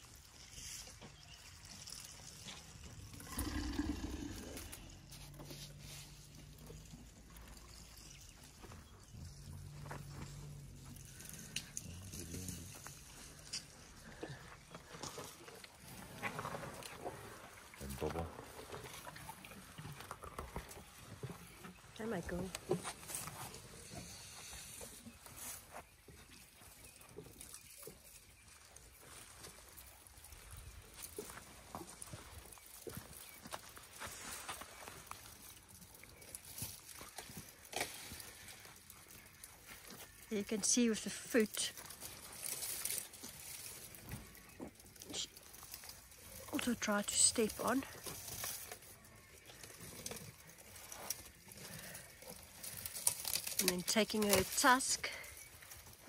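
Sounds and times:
branches rustling: 0:00.0 - 0:56.0
twigs crunching: 0:26.6 - 0:56.0.

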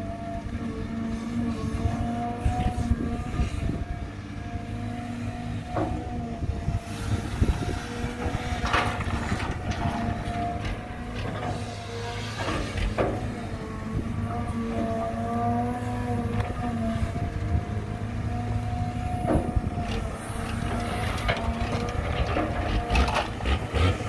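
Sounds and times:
diesel engine running: 0:00.0 - 0:24.0
continuous rattle and clatter: 0:07.0 - 0:13.5, 0:19.2 - 0:24.0.

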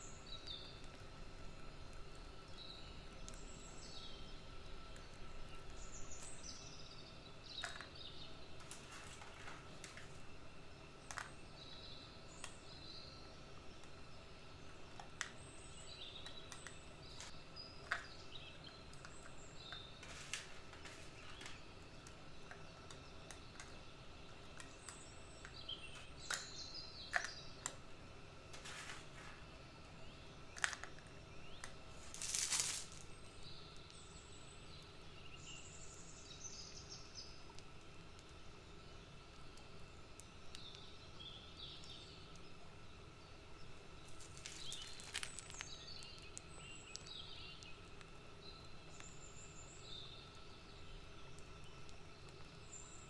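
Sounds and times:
faint steady hum: 0:00.0 - 0:53.0
spoon clicking on plastic cups: 0:07.5 - 0:08.0, 0:11.1 - 0:11.4, 0:17.8 - 0:27.8, 0:30.5 - 0:31.8.

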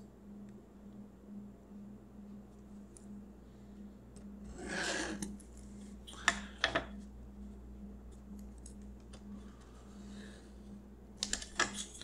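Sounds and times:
pen scratching along ruler: 0:04.5 - 0:05.3.

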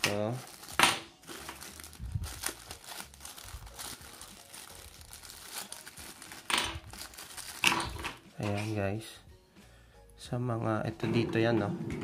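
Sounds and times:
plastic bag crinkling: 0:00.0 - 0:08.2.

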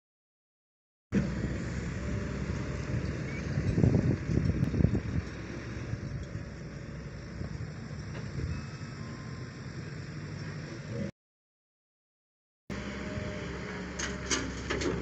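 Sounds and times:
diesel engines running: 0:01.1 - 0:11.1, 0:12.7 - 0:15.0
wind on microphone: 0:02.8 - 0:06.4.

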